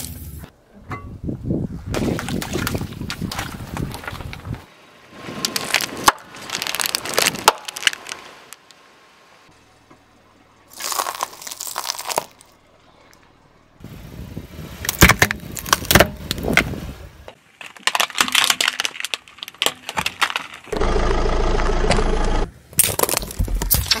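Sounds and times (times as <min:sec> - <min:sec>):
tyre crushing objects: 0:10.7 - 0:12.4.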